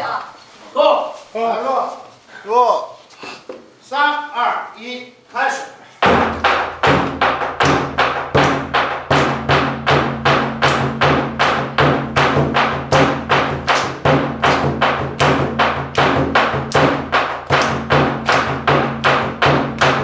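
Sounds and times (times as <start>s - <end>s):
drum beaten steadily: 6.0s - 20.0s.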